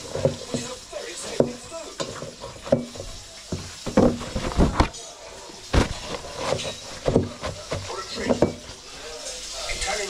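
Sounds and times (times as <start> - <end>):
steel bowl knocks: 1.4 - 4.6, 6.5 - 8.7
potato chips rustling in towel: 3.2 - 8.3.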